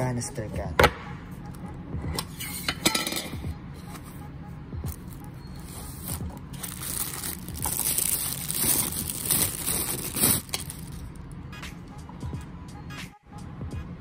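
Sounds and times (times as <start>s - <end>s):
plastic bag crinkling: 5.9s - 11.1s.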